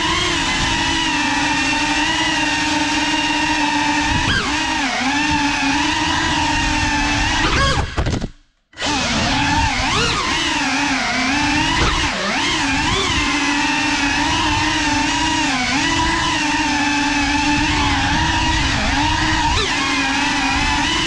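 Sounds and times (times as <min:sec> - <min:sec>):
drone motors whining: 0:00.0 - 0:08.2, 0:08.8 - 0:21.0.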